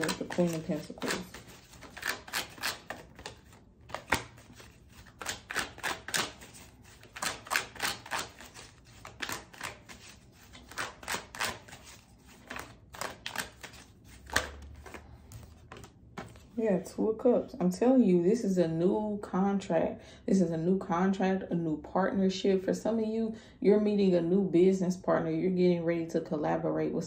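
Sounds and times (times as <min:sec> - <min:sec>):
cards being shuffled: 0:00.0 - 0:16.6.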